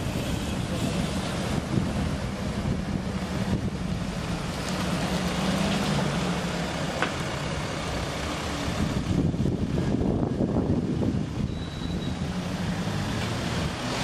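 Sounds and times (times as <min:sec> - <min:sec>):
large vehicle engine humming: 0:00.0 - 0:14.0.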